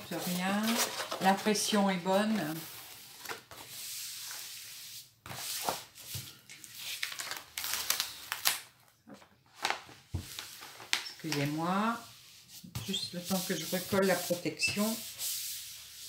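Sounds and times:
plastic film crinkling and crackling: 6.2s - 11.8s.

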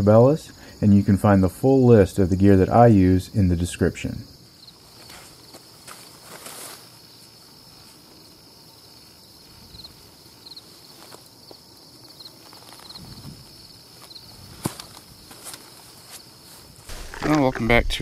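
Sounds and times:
crickets chirping: 0.0s - 18.0s
footsteps and rustles on dirt: 4.7s - 18.0s.

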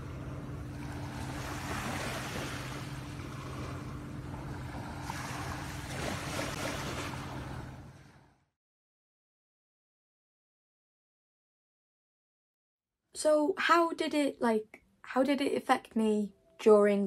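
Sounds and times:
small waves washing on sand: 0.0s - 8.3s.

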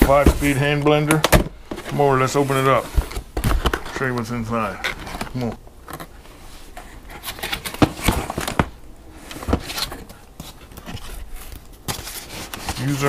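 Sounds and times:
cardboard and paper rustling: 0.0s - 13.0s.

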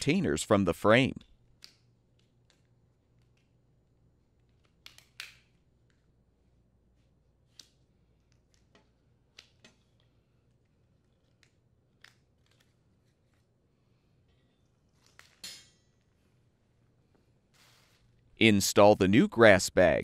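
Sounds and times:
plastic clicks and snaps: 4.5s - 6.0s.

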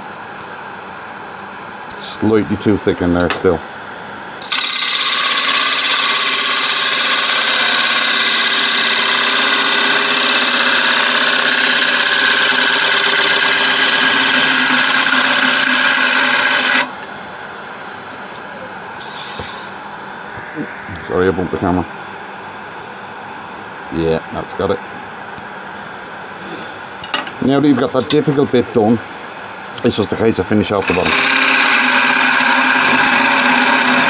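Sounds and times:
gouge cutting wood on lathe: 4.4s - 16.9s, 30.8s - 34.0s.

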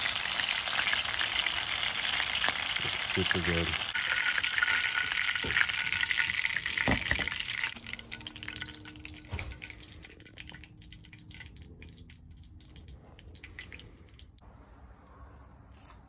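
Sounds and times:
fish frying in hot oil: 0.0s - 12.2s.

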